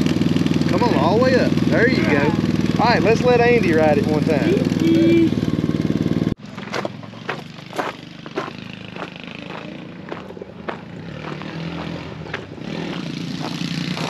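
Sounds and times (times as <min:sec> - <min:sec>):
small engine humming: 0:00.0 - 0:14.0
footsteps crunching on gravel: 0:06.4 - 0:14.0.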